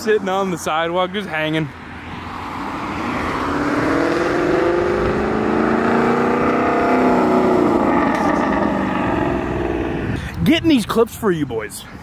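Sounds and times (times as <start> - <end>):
car accelerating past: 2.1 - 10.1.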